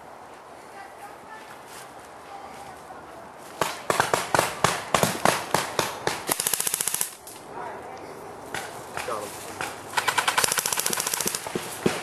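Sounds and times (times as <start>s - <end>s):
airsoft gun rapid burst: 6.3s - 7.2s, 10.0s - 12.0s.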